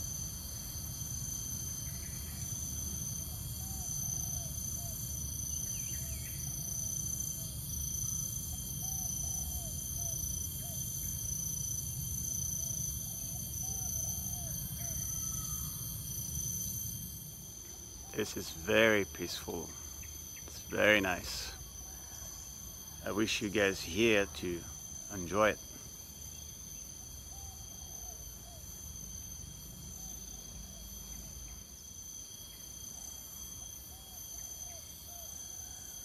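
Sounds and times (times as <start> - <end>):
insects shrilling: 12.8 - 21.9, 23.0 - 25.8.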